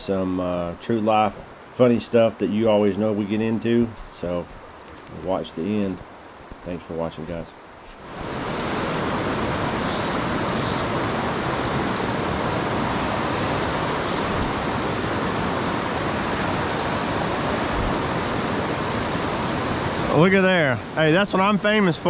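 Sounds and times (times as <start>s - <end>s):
creek water rushing over rocks: 7.6s - 22.0s.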